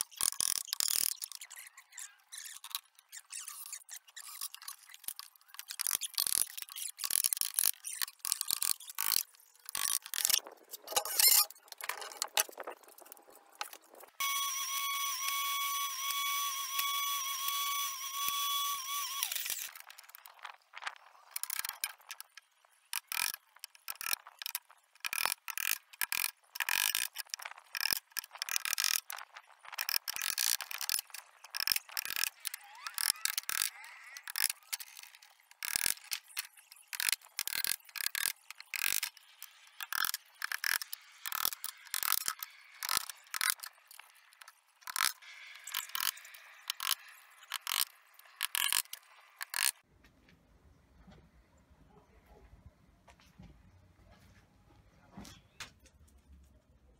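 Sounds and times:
table saw whining: 0:14.2 - 0:19.7.

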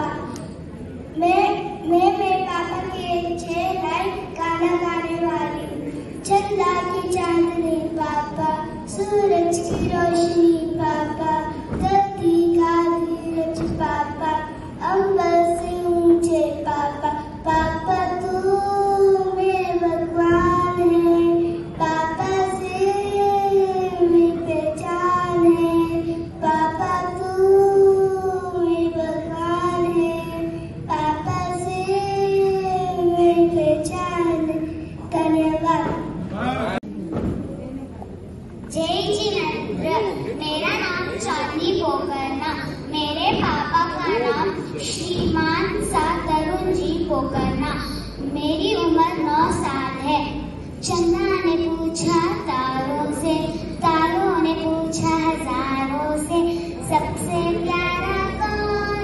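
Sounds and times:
child singing: 0:01.2 - 0:36.1, 0:38.8 - 0:59.0.

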